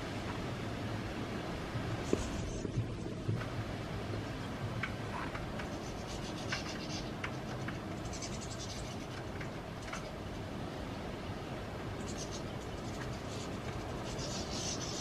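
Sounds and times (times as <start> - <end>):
low background noise: 0.0 - 15.0
beaks and feet scratching mesh: 2.0 - 3.0, 4.8 - 10.5, 11.9 - 15.0.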